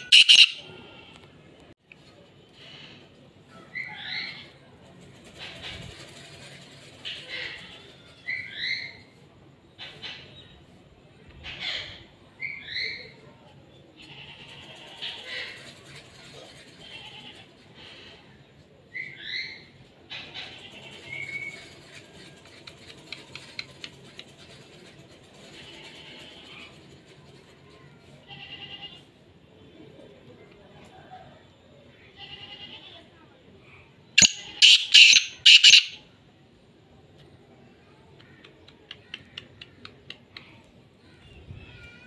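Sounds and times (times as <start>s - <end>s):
bird short notes: 0.0s - 0.6s
bird chirping: 0.0s - 0.7s, 34.2s - 36.0s
light bird ticks: 38.1s - 40.8s.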